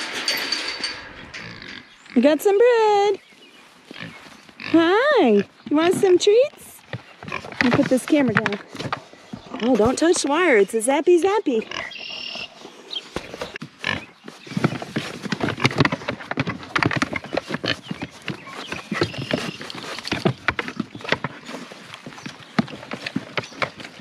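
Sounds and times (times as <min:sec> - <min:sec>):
pigs chomping and snuffling: 0:05.3 - 0:10.2, 0:11.7 - 0:24.0
hooves knocking on wood: 0:06.9 - 0:10.4, 0:13.2 - 0:13.6.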